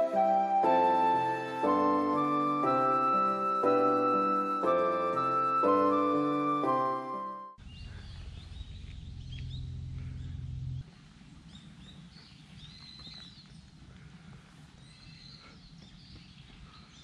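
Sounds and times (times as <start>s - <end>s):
steady low rumble: 7.6s - 12.1s
small birds chirping: 7.6s - 17.0s.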